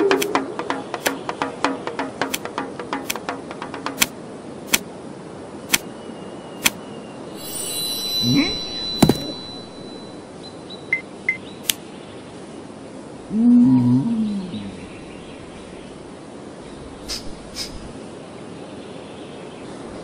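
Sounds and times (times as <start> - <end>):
sharp click: 6.6 - 6.8.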